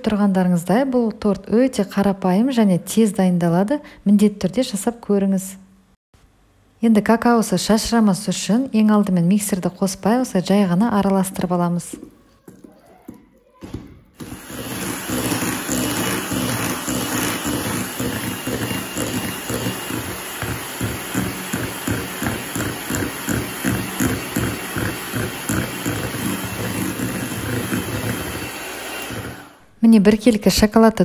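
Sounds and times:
electric hand mixer whisking batter: 0:14.2 - 0:29.7.

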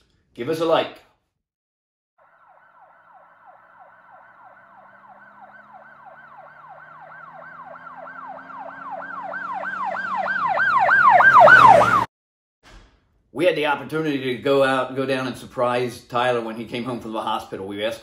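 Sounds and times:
emergency siren yelping: 0:02.2 - 0:12.1.

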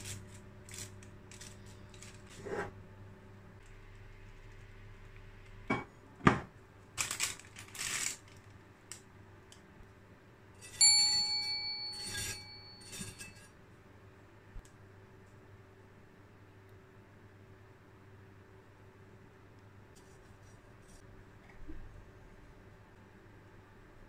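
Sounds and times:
baking paper rustling: 0:00.0 - 0:02.8, 0:06.9 - 0:08.6
tableware clinking: 0:10.6 - 0:13.5.

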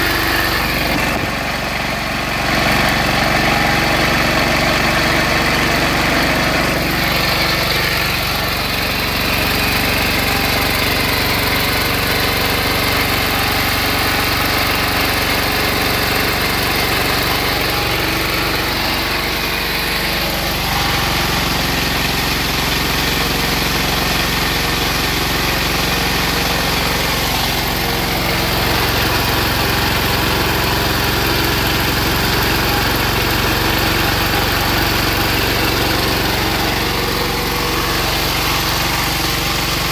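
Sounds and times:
diesel engine running: 0:00.0 - 0:39.9.

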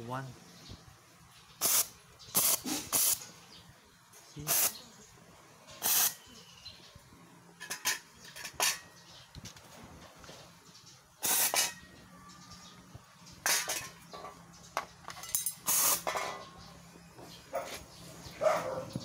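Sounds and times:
steam cleaner jets hissing: 0:01.6 - 0:03.4, 0:04.4 - 0:04.8, 0:05.8 - 0:06.2, 0:11.2 - 0:11.8, 0:15.6 - 0:16.2.

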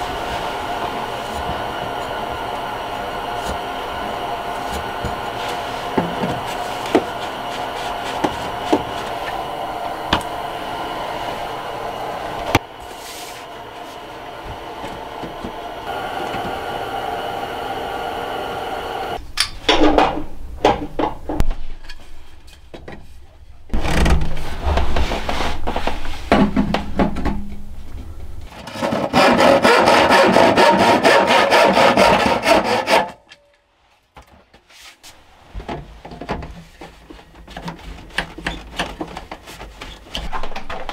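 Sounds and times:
loud steady noise: 0:00.0 - 0:19.2
hand tool scraping: 0:03.3 - 0:11.2, 0:12.4 - 0:16.6, 0:28.5 - 0:33.2.

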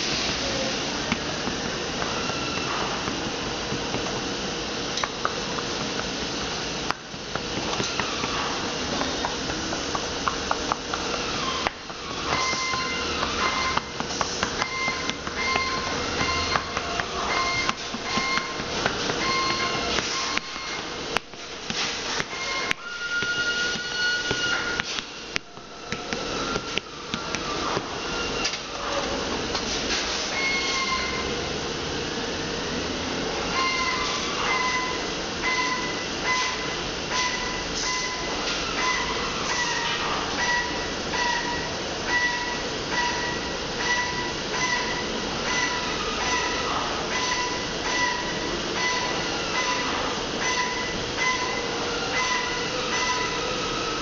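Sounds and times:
shop machinery running: 0:00.0 - 0:54.0
steady hissing workshop noise: 0:00.0 - 0:54.0
short high-pitched squeals: 0:22.3 - 0:24.8.

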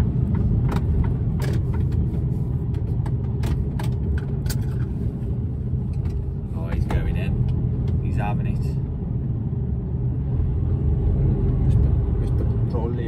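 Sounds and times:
clicks and rattles in cab: 0:00.0 - 0:05.0, 0:05.8 - 0:08.0
diesel truck engine rumble: 0:00.0 - 0:13.0.

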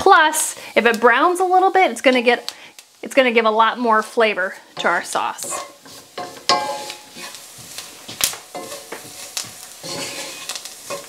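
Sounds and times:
roux sizzling: 0:00.0 - 0:11.0
wooden spatula scraping skillet: 0:04.0 - 0:11.0.

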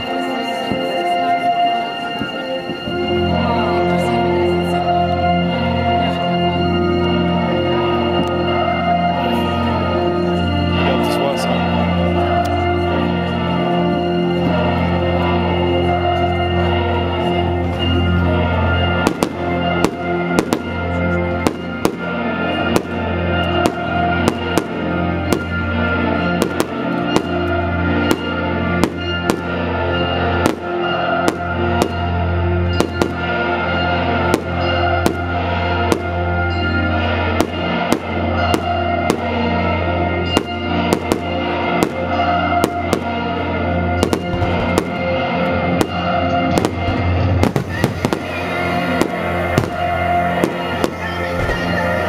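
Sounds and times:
music with long held tones: 0:00.0 - 0:52.0
fireworks bangs: 0:19.0 - 0:29.6, 0:30.4 - 0:33.5, 0:34.2 - 0:36.3, 0:37.2 - 0:39.6, 0:40.2 - 0:52.0.

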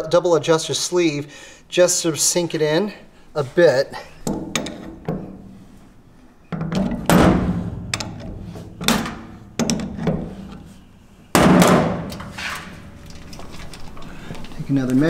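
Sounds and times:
wrench clanking on metal: 0:04.2 - 0:05.4.

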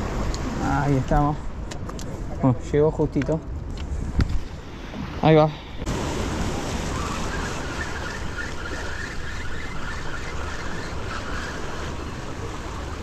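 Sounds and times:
sea surf washing on rocks: 0:00.0 - 0:02.2, 0:04.9 - 0:13.0
wind rumbling on microphone: 0:00.0 - 0:13.0.

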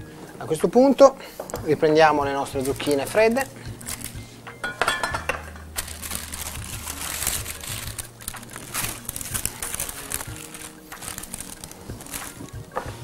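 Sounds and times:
paper rustling and crinkling: 0:01.8 - 0:04.2, 0:05.7 - 0:13.0.

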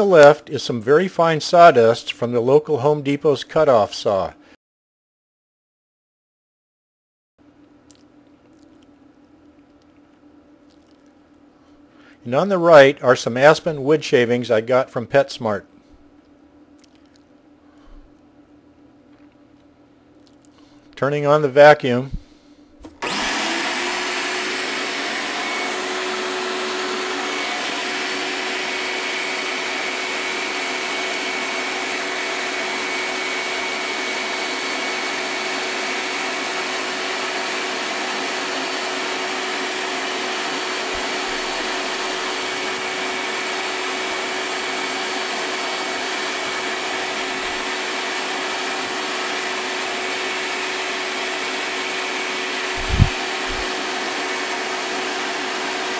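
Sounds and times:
shop vacuum running: 0:22.1 - 0:55.9.

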